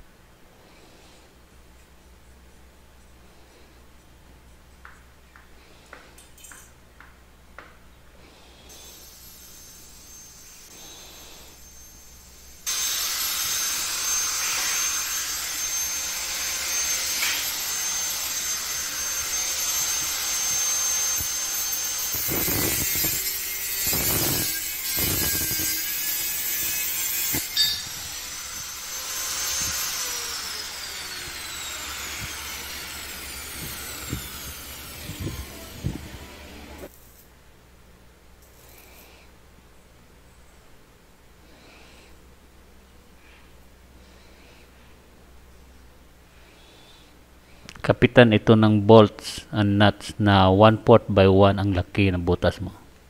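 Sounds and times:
angle grinder cutting steel: 8.7s - 36.9s
grinder disc winding down: 8.7s - 36.9s.

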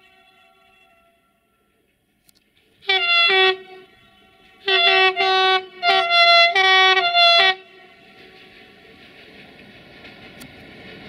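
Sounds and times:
electric locomotive horn blasts: 0.0s - 1.6s, 2.8s - 8.0s
train running noise: 0.0s - 11.0s.

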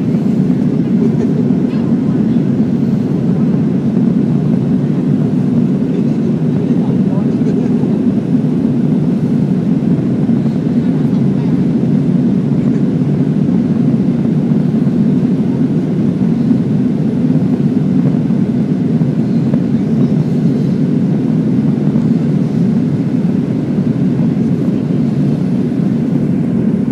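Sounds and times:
jet airliner cabin noise: 0.0s - 26.9s.

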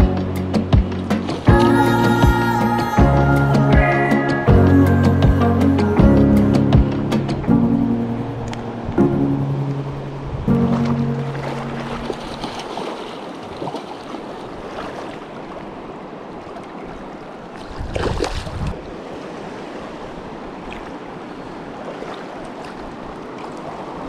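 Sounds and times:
wind on microphone: 0.0s - 12.9s, 17.6s - 19.0s
river water rushing: 1.0s - 24.0s.

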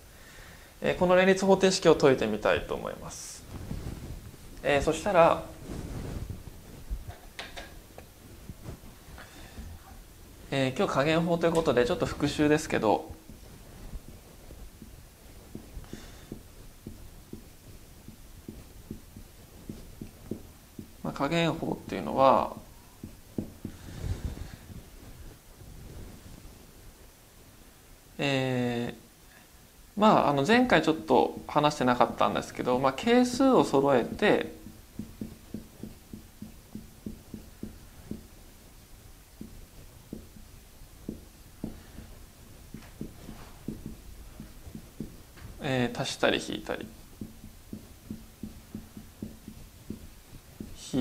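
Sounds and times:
marker writing on whiteboard: 10.8s - 24.9s, 30.7s - 38.7s, 39.3s - 51.0s.

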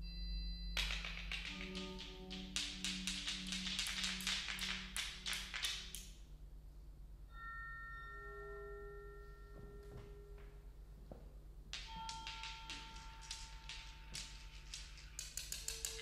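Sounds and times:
soft sustained pure tones: 0.0s - 16.0s
dry tapping percussive clicks: 0.8s - 6.1s, 11.8s - 16.0s.

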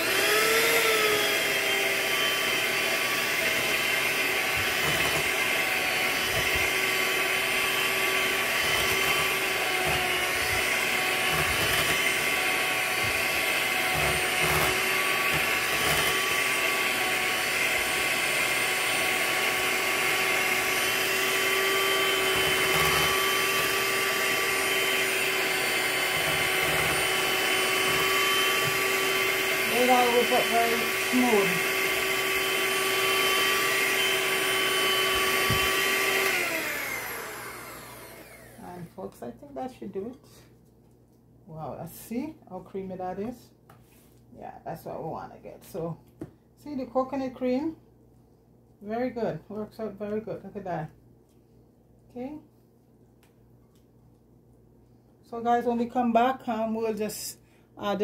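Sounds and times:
electric hand mixer whining: 0.0s - 38.9s.

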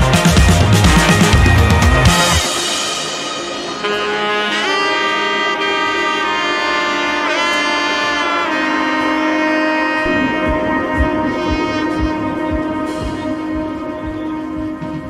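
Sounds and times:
bass drum beat: 0.0s - 2.6s, 10.0s - 15.0s
sustained melody over held chords: 0.0s - 15.0s.

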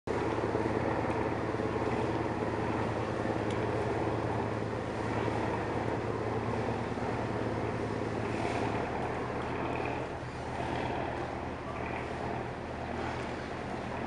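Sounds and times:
engine idling: 0.1s - 14.0s
harbour noise: 0.1s - 14.0s.

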